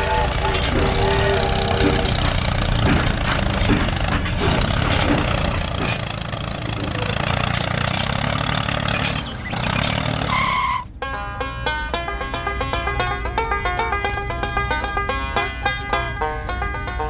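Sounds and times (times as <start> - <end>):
model tractor motor running: 0.0 - 10.4.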